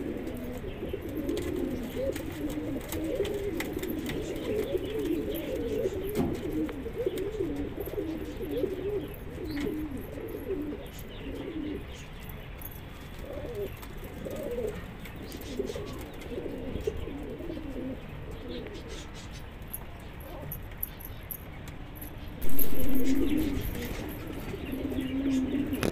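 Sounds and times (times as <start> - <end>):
pigeons cooing: 0.0 - 25.9.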